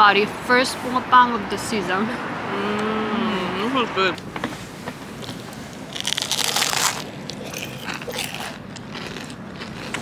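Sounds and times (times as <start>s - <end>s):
chewing crunches: 5.2s - 10.0s
crunching of crisp pastry: 5.2s - 10.0s.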